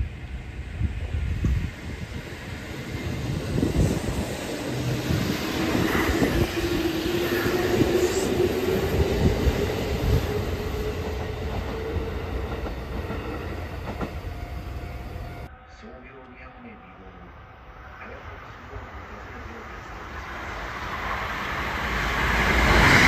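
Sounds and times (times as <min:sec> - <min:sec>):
train wheels clattering on rails: 0:01.4 - 0:14.7.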